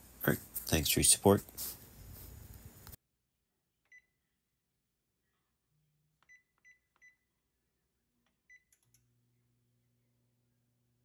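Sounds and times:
oven control panel beeps: 8.5 - 8.9.

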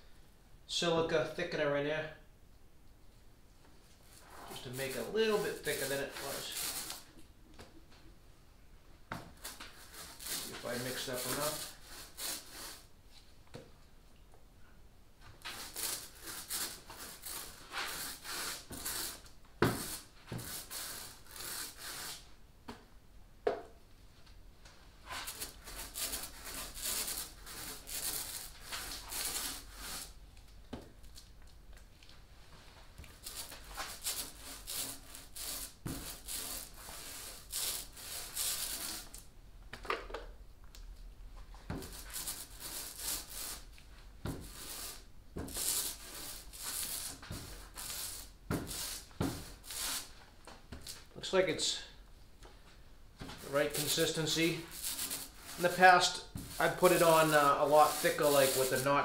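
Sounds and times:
paint roller rubbing on wood: 4.1 - 7.2, 9.4 - 12.9, 15.4 - 22.3, 25.0 - 30.2, 33.0 - 39.2, 41.7 - 50.2, 53.2 - 59.0.

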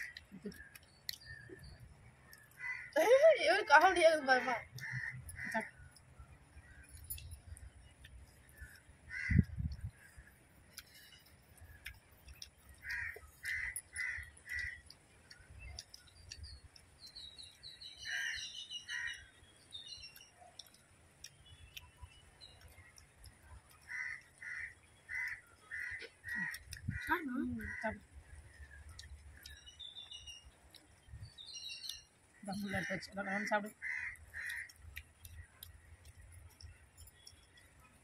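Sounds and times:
crows cawing: 0.0 - 0.2, 2.4 - 3.2, 4.3 - 6.0, 8.6 - 10.2, 12.8 - 14.9, 18.1 - 19.3, 23.8 - 28.0, 32.6 - 35.0
small birds chirping: 0.0 - 38.0.

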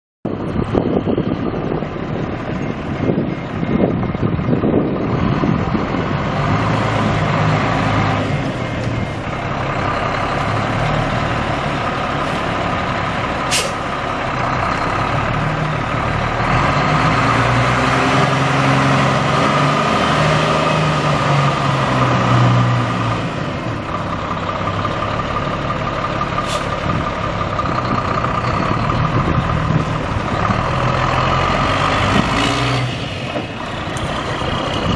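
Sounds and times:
diesel truck engine revving: 0.3 - 34.9
short sharp high sounds: 13.5 - 13.8.

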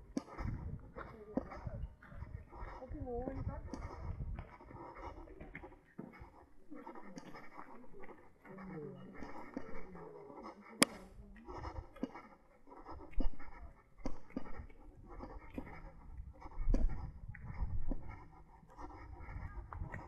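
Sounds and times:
wind rumble on microphone: 0.0 - 8.2, 12.9 - 20.0
footsteps on paved path: 0.0 - 20.0.

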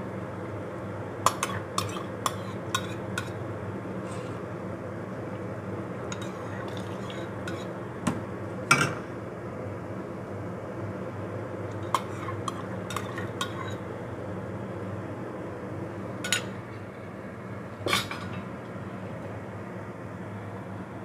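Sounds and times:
steady low hum: 0.0 - 21.0
ladle clinking against pot: 16.3 - 16.5.

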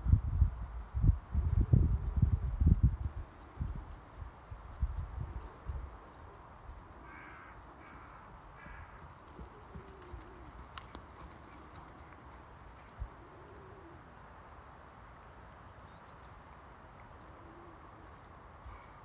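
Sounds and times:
crow cawing: 7.0 - 9.1
horse hoofbeats trotting: 7.5 - 13.2.

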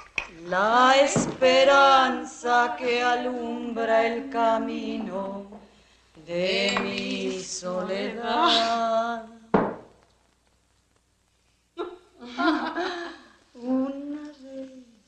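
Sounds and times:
person singing long notes: 13.6 - 15.0.

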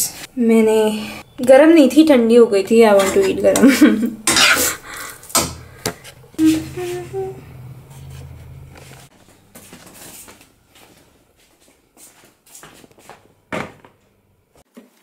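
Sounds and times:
low steady hum: 0.3 - 11.4
person humming: 6.4 - 8.6.

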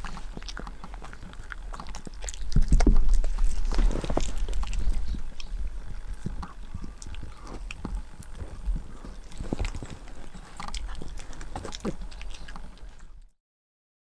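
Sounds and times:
dog chewing a hard chew: 0.0 - 13.3
low rumble: 0.0 - 13.3.

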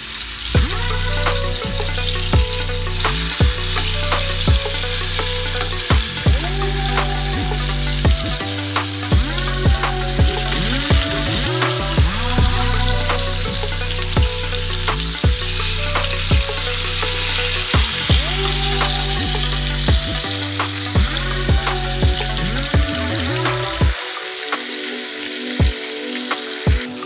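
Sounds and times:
background music with steady beat: 0.0 - 27.0
fish sizzling in hot oil: 0.0 - 27.0.

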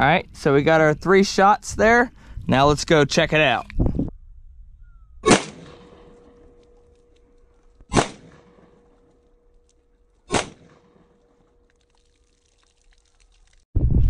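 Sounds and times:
pistol shots: 5.2 - 6.7, 7.9 - 9.0, 10.3 - 11.2.

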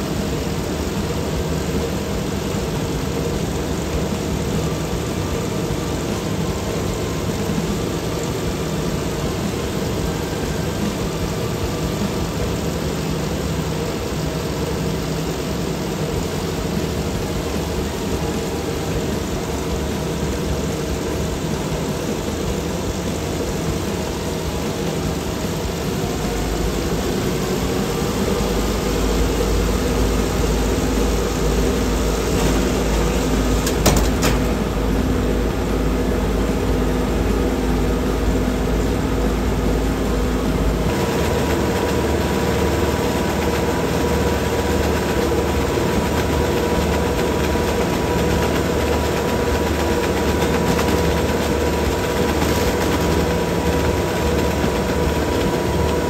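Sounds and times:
treadmill motor and belt: 0.0 - 56.0
short clatter: 32.2 - 34.8.

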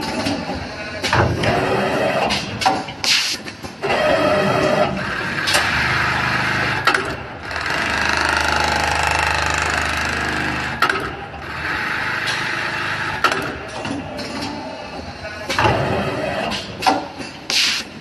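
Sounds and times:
sewing machine buzzing: 7.4 - 10.8.

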